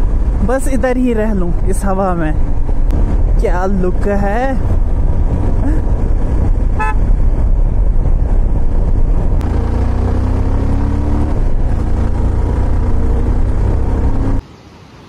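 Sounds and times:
wind rumble on microphone: 0.0s - 14.4s
motorcycle engine accelerating: 4.7s - 14.4s.

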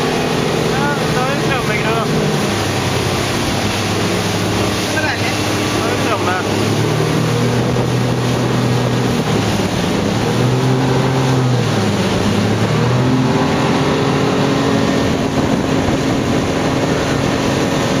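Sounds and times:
speedboat engine drone: 0.0s - 18.0s
spray rushing along hull: 0.0s - 18.0s.

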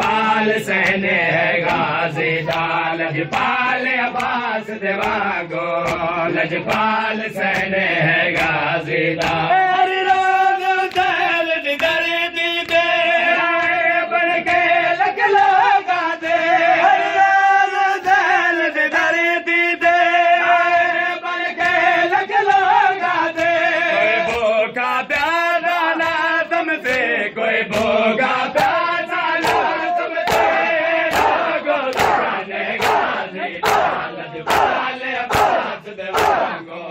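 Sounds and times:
men chanting: 0.0s - 36.9s
hands slapping bare chests: 1.6s - 2.7s, 3.3s - 4.4s, 5.8s - 6.1s, 7.5s - 9.5s, 27.7s - 28.0s, 29.4s - 36.6s.

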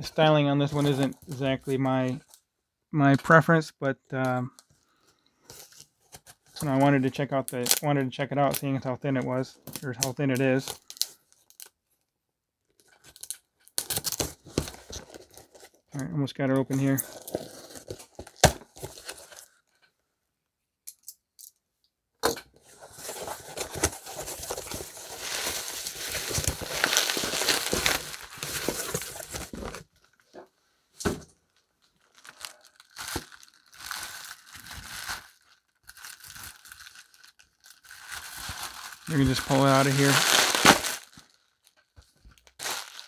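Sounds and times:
bubble wrap crinkling: 22.7s - 29.8s, 31.8s - 43.0s
packaging tearing: 23.0s - 29.5s, 32.1s - 41.4s, 42.5s - 43.0s.

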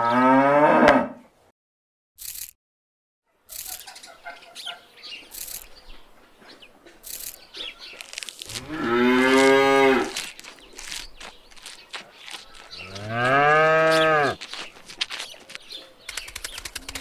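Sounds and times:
cow mooing: 0.0s - 1.2s, 8.5s - 10.2s, 12.9s - 14.4s.

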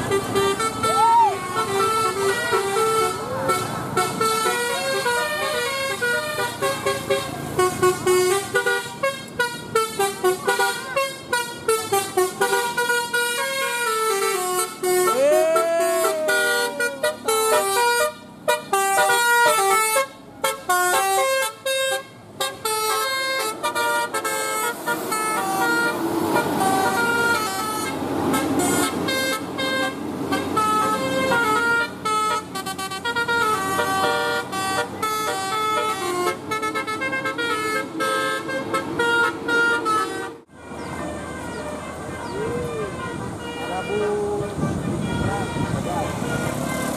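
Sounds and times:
multi-trumpet horn playing tune: 0.0s - 46.9s
passing vehicle road noise: 0.0s - 46.9s.

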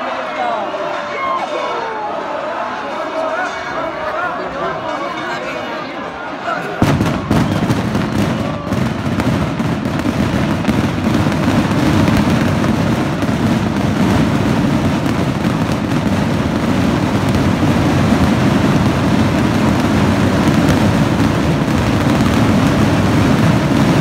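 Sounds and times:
fireworks crackling and banging: 6.6s - 24.0s.

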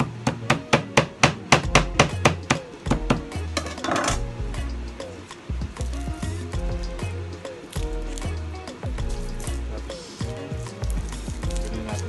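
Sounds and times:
knocks on wooden cutting board: 0.0s - 3.8s
background music with bass line: 0.0s - 12.0s.

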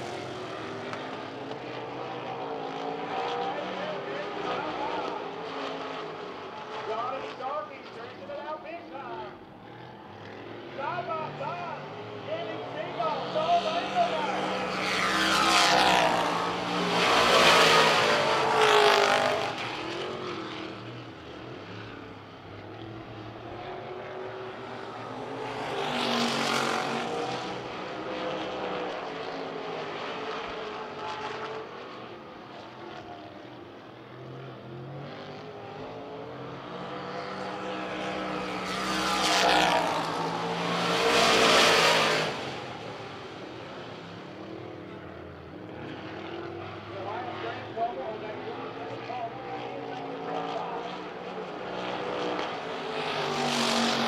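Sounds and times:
race cars passing at full throttle: 0.0s - 54.0s.

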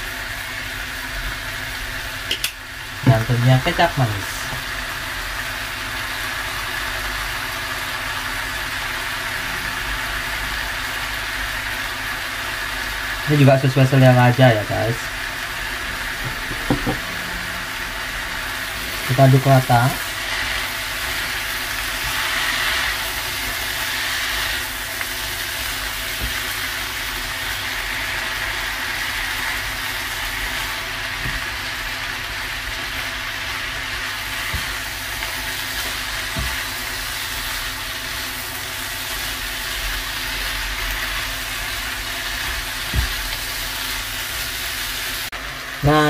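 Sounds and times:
food sizzling in a wok: 0.0s - 46.0s
steady hum: 0.0s - 46.0s
spatula knocking against pan: 16.3s - 17.0s.

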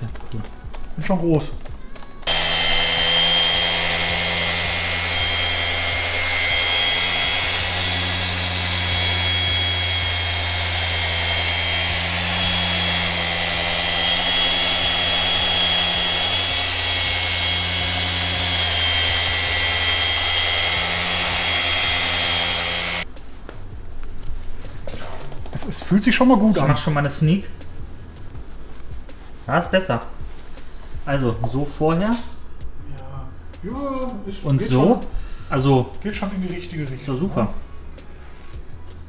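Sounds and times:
mini polisher whining: 2.2s - 23.1s.

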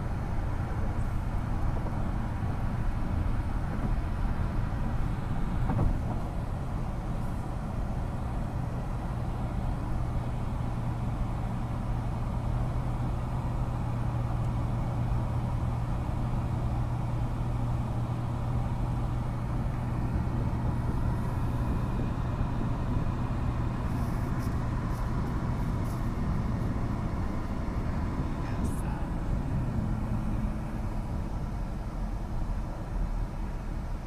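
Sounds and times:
car cabin road drone: 0.0s - 34.0s.

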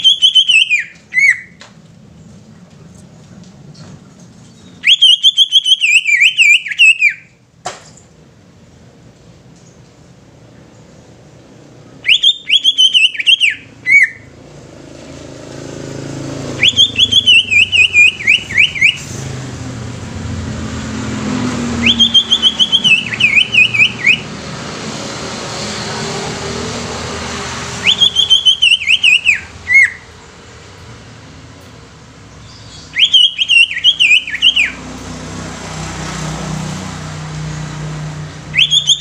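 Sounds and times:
bird singing whistled phrases: 0.0s - 1.6s, 4.6s - 7.3s, 12.0s - 14.3s, 16.6s - 19.2s, 21.8s - 24.3s, 27.8s - 30.1s, 32.4s - 34.8s, 38.5s - 39.0s
low rumble of motor traffic: 0.0s - 39.0s.

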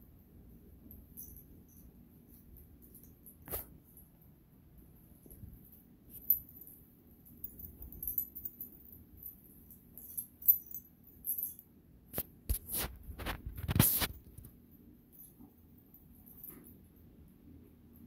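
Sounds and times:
collar bell jingling: 0.8s - 4.2s, 5.0s - 11.8s, 14.9s - 17.2s
cats scuffling: 12.2s - 14.6s.

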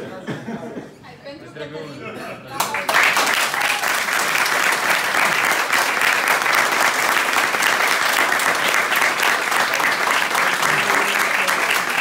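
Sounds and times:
people applauding: 2.6s - 12.0s.

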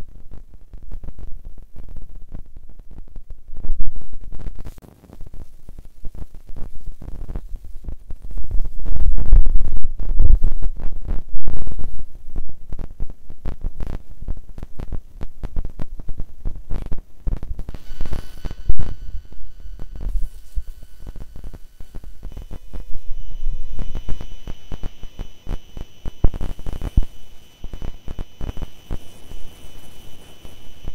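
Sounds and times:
microphone handling noise: 0.0s - 30.9s
faint steady high tones: 17.8s - 30.9s.

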